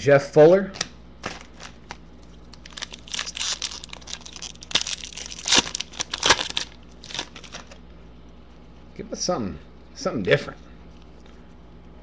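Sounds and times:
foil wrapper crinkling and tearing: 1.2 - 7.8.

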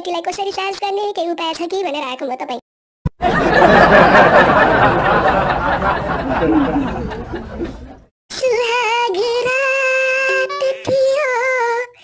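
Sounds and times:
audience laughter: 3.2 - 8.1.

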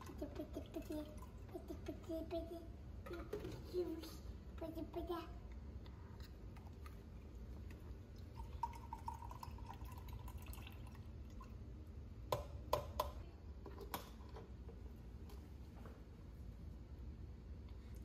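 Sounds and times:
liquid trickling into mug: 7.2 - 11.6.

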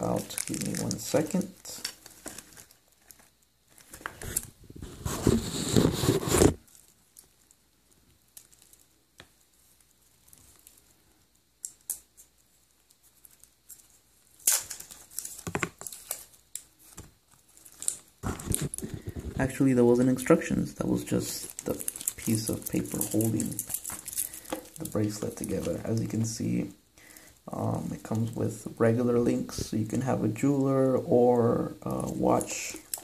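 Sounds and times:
packaging crinkling and tearing: 0.0 - 7.6, 13.1 - 26.5, 31.8 - 33.0.

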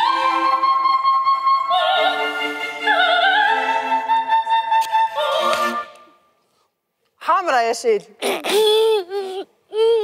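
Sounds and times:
soprano singing with vibrato: 0.0 - 6.2.

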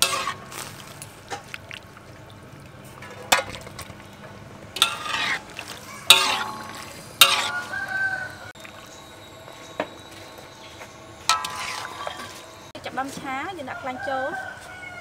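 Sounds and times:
metal utensils scraping a wok: 0.0 - 1.1, 4.8 - 8.5, 11.2 - 13.1
metal ringing tone: 6.0 - 12.8.

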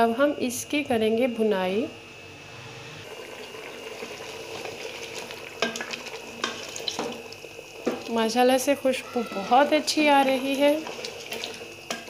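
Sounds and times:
meat sizzling in fat: 3.0 - 12.0
wooden spoon stirring: 9.8 - 12.0.

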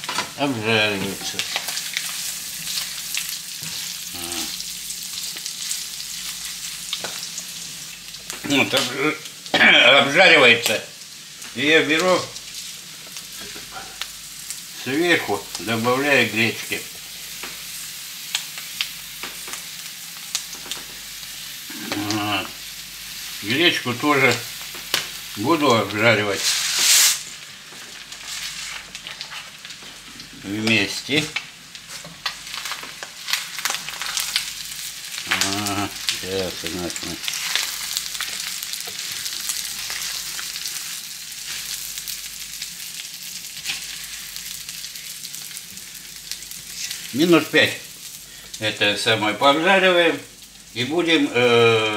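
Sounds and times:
meat and onion sizzling in pan: 0.0 - 51.9.

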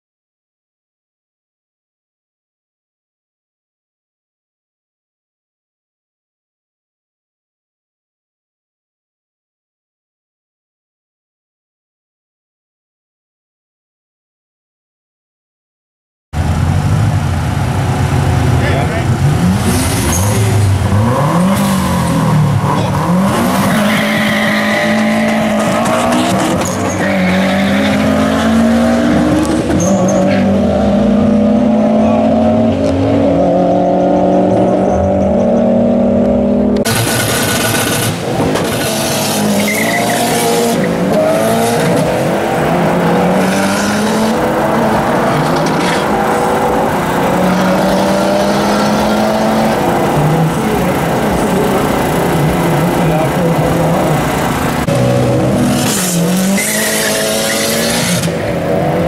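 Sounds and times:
car engines revving and accelerating: 16.4 - 59.0.

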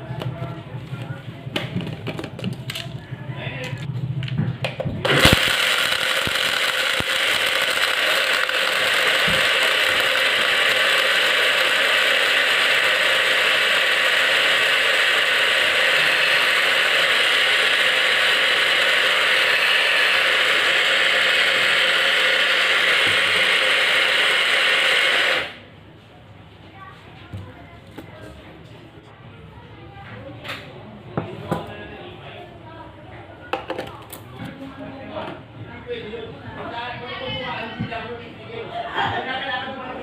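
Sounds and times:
blender running: 5.0 - 25.7.

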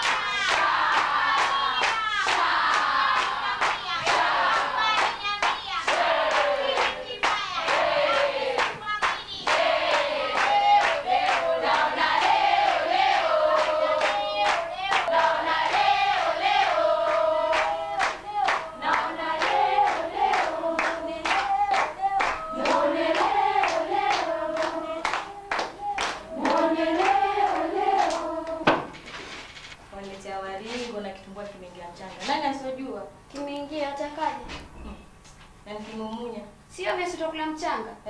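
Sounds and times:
steady hand claps: 0.0 - 29.0
group singing together: 0.0 - 29.2.

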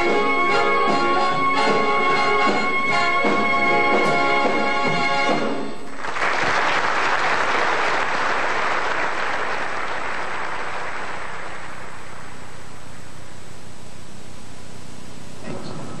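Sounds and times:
big band saxophones and brass: 0.0 - 5.9
audience applauding: 5.3 - 13.2.

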